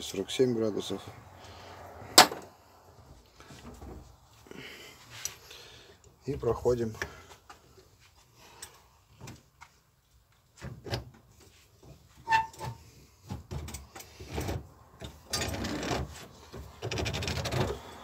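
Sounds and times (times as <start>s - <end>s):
sharp metallic clink: 2.2s - 2.5s.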